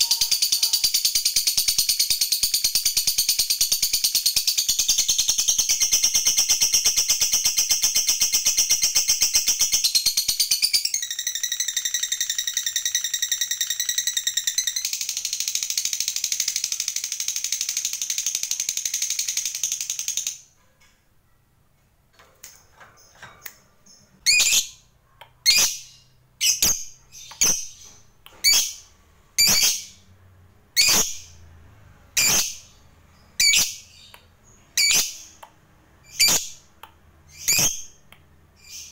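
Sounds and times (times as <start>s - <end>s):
shrill bird calls: 0.0s - 15.4s.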